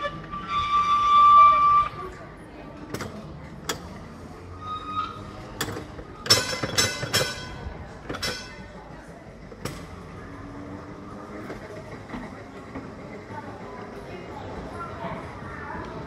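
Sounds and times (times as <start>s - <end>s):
wheel squeal: 0.0s - 2.2s, 4.4s - 7.6s
tram wheels clacking: 5.2s - 10.2s.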